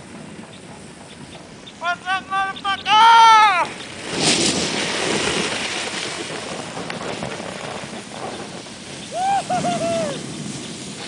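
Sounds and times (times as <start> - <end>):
skis sliding over snow: 0.0 - 11.0
person shouting: 1.8 - 3.7, 9.2 - 10.2
wind on microphone: 2.5 - 11.0.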